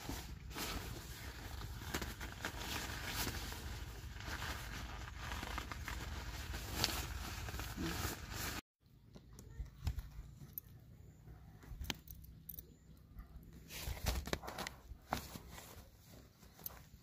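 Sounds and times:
tent fabric rustling: 0.0 - 8.7.

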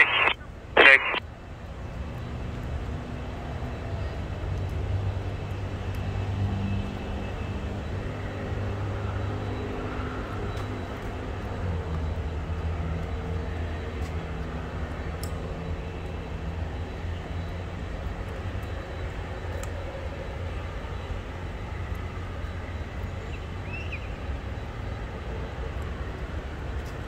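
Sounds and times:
airband radio burst: 0.0 - 1.2
distant jet engines droning: 0.0 - 27.0.

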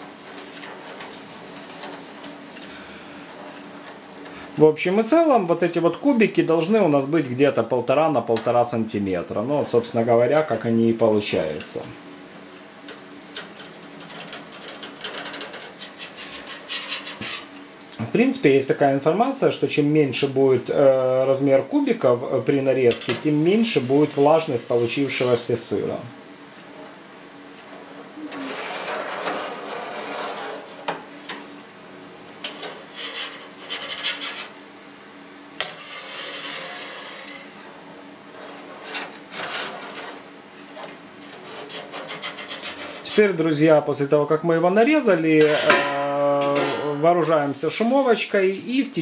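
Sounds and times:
wire harp scraping metal vat: 13.4 - 17.6, 28.2 - 30.8, 32.4 - 34.5, 35.6 - 37.6, 38.3 - 40.2, 41.2 - 43.3.

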